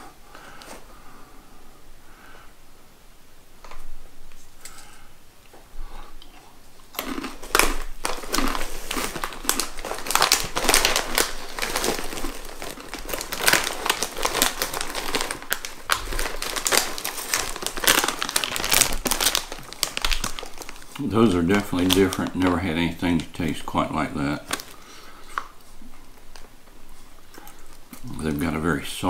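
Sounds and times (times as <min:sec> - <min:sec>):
plastic snack bag crinkling: 0:06.8 - 0:28.9.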